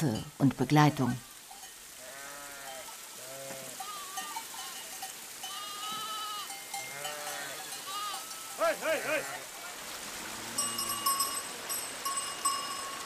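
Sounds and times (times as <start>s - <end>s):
steady hiss: 0.0s - 13.0s
sheep bleating: 2.0s - 9.5s.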